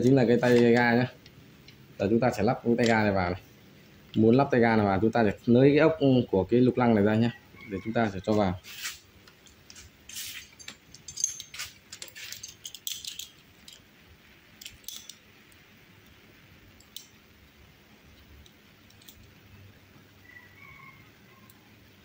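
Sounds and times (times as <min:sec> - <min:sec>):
metal hand tools clinking: 0:10.1 - 0:13.9, 0:14.6 - 0:15.2.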